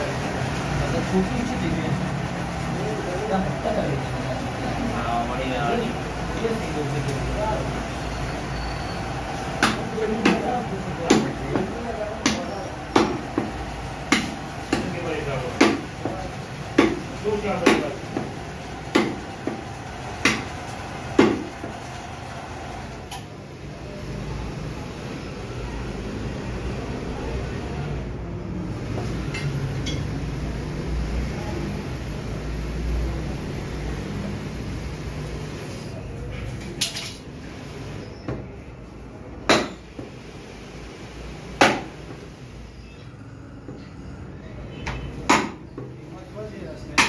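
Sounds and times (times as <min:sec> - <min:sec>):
cleaver chopping meat on wood: 0:09.6 - 0:10.5, 0:11.1 - 0:15.0, 0:15.6 - 0:15.9, 0:16.8 - 0:17.0, 0:17.6 - 0:19.6, 0:20.2 - 0:20.5, 0:21.2 - 0:21.5, 0:39.5 - 0:40.1, 0:41.6 - 0:41.9, 0:45.2 - 0:45.9
cleaver chopping bones: 0:14.1 - 0:14.9, 0:16.8 - 0:17.0, 0:18.9 - 0:19.6, 0:20.2 - 0:20.5, 0:39.5 - 0:39.8, 0:41.6 - 0:41.9.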